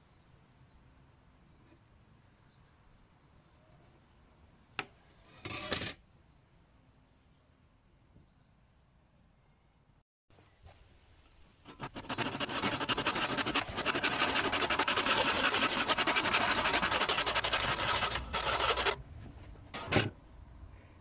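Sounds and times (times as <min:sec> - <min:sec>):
hand saw cutting wood: 0:11.7 - 0:19.0, 0:19.8 - 0:20.1.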